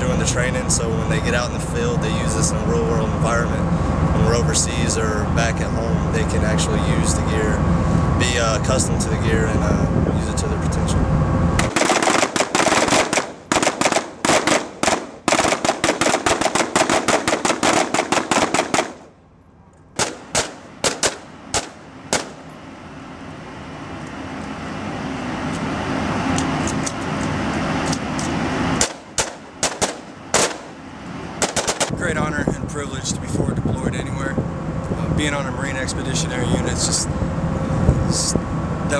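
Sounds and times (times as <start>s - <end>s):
steady rushing noise: 0.0s - 19.3s, 19.9s - 38.9s
rifle shots: 11.6s - 19.1s, 20.0s - 22.5s, 28.8s - 30.8s, 31.4s - 31.9s.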